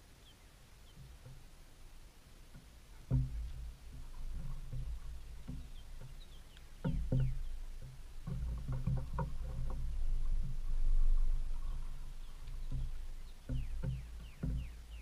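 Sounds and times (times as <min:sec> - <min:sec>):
deer grazing and chewing: 0:00.0 - 0:15.0
low rumbling: 0:02.8 - 0:15.0.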